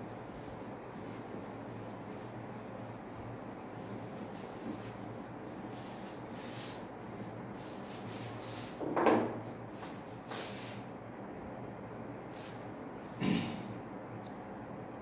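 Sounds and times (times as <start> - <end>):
duster wiping a whiteboard: 0.0 - 10.9, 12.3 - 13.2.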